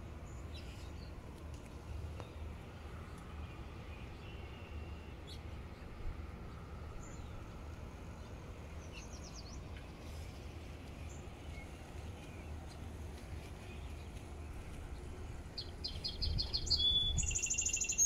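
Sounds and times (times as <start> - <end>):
low outdoor rumble: 0.0 - 18.0
songbird chirping: 0.3 - 18.0.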